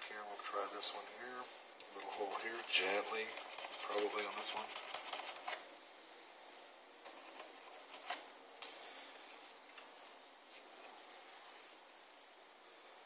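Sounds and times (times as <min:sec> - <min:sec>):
hobby knife scratching foam: 0:02.0 - 0:05.6, 0:07.1 - 0:08.3.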